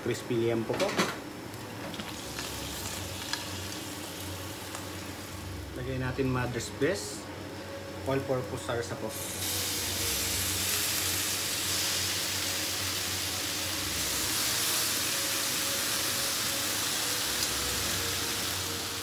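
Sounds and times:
low steady hum: 0:00.0 - 0:19.0
sauce sizzling in a frying pan: 0:01.4 - 0:05.8, 0:09.1 - 0:19.0.

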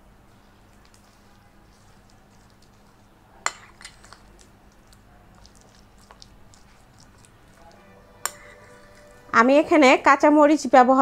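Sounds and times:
spoon squishing pulp: 0:00.3 - 0:09.4
spoon clinking against bowl: 0:08.2 - 0:09.3.

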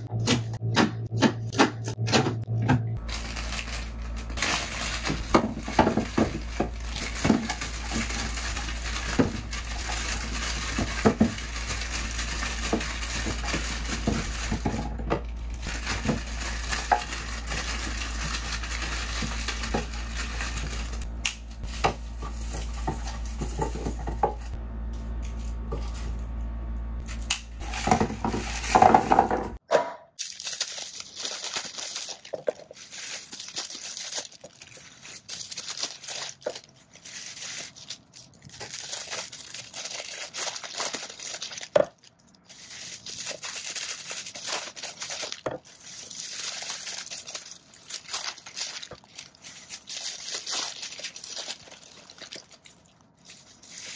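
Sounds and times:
low steady hum: 0:00.0 - 0:29.6
plastic wrappers crinkling and tearing: 0:03.0 - 0:26.4, 0:27.0 - 0:29.6, 0:30.2 - 0:53.9
potatoes knocking into wooden crate: 0:27.6 - 0:30.0.

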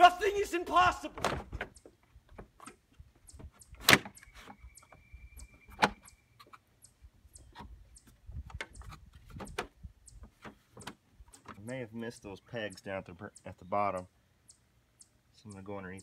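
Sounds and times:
plastic clicking and rubbing: 0:07.4 - 0:11.6.

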